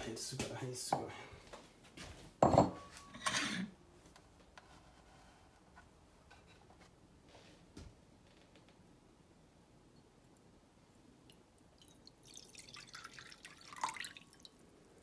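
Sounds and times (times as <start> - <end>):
dishes clattering: 2.4 - 3.7.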